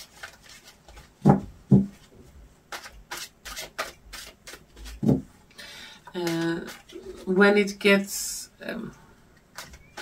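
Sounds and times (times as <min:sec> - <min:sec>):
cards shuffling: 0:00.0 - 0:02.1, 0:02.7 - 0:05.2.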